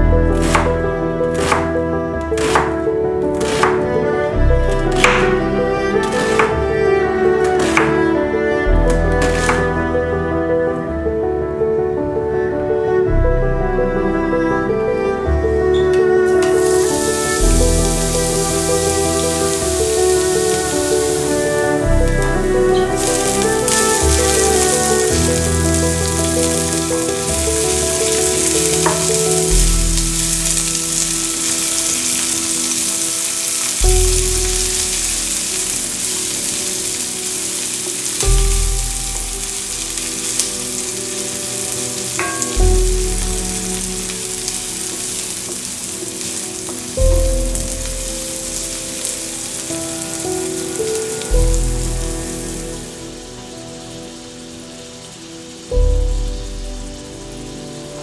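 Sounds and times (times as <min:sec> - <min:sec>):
onion sizzling in oil: 0:00.0 - 0:10.3, 0:15.7 - 0:58.0
soft background music: 0:00.0 - 0:58.0
wooden spatula stirring: 0:01.3 - 0:01.8.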